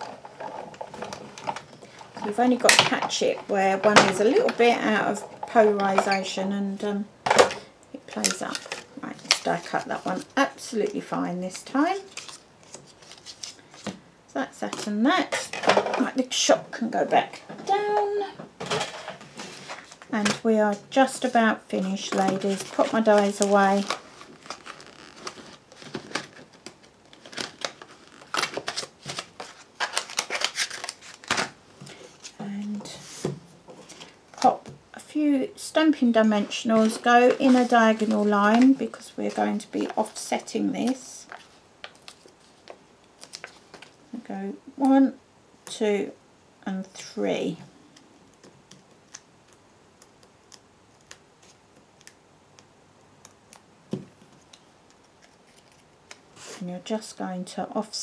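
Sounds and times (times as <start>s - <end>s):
plastic rustling: 0.0s - 6.3s, 8.1s - 14.0s, 17.3s - 34.8s, 36.0s - 44.2s, 53.9s - 56.7s.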